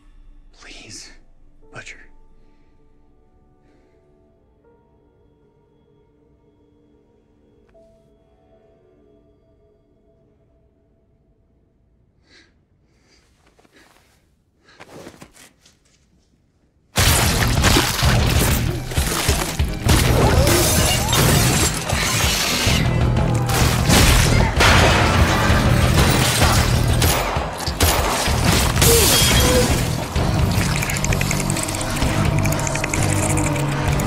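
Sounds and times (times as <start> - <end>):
smashing and impact effects: 17.0 - 22.8, 23.4 - 32.9
loud dramatic music: 17.0 - 34.0.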